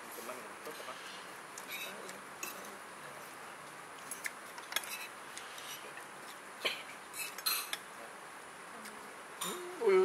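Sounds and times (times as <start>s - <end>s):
room noise: 0.0s - 10.0s
cutlery and dishes clinking: 1.7s - 2.7s.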